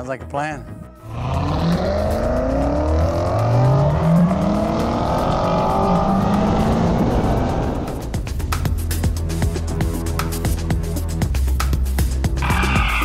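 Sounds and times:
car engine accelerating: 1.0 - 8.8.

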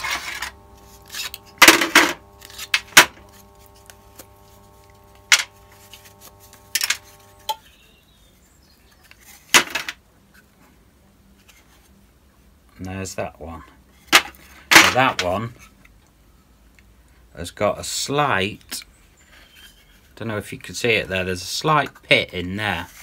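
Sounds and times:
faint steady hum: 0.0 - 8.1.

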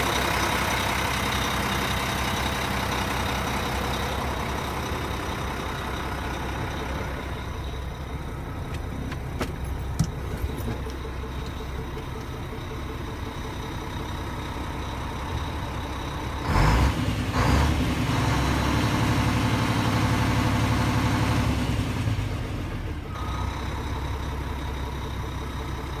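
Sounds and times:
diesel truck engine idling: 0.0 - 26.0
engine loud bursts: 15.2 - 23.8.

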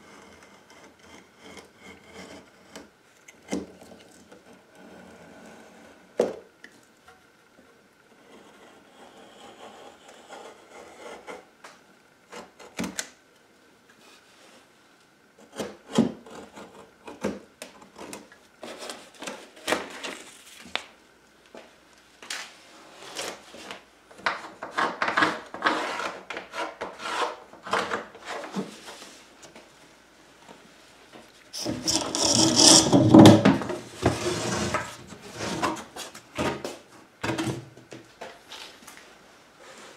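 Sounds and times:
hand tool rasping plywood: 31.6 - 33.5.

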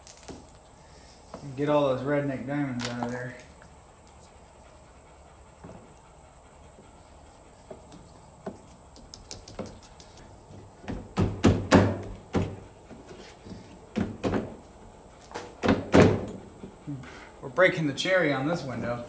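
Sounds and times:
thunks on a truck door: 10.8 - 12.6, 15.4 - 16.4.

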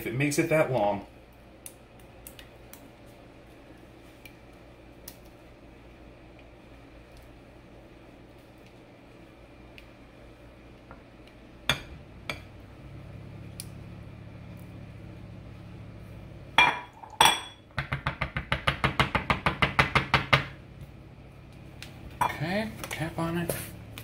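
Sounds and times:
spatula knocking on glass bowl: 17.8 - 20.6.

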